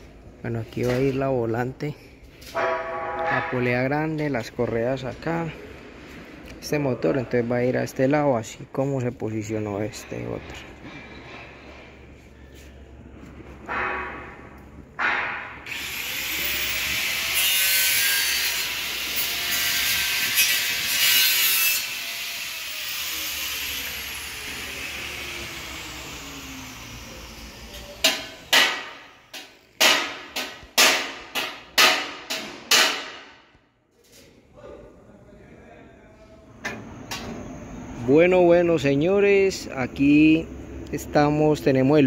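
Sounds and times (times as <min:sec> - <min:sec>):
power tool whining and grinding: 0:15.7 - 0:28.0.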